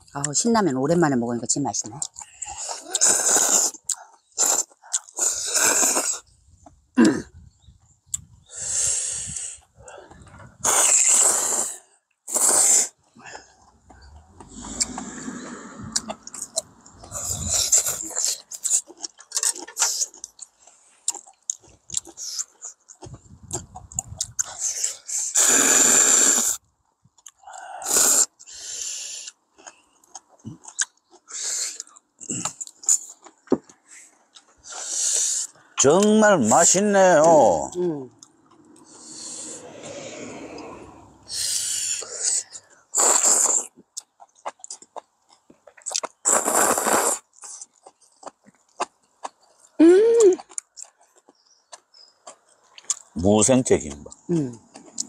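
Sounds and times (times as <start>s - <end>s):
people slurping noodles: 2.0s - 6.3s, 8.5s - 21.3s, 23.4s - 26.6s, 27.4s - 29.4s, 34.6s - 43.8s, 46.2s - 47.7s.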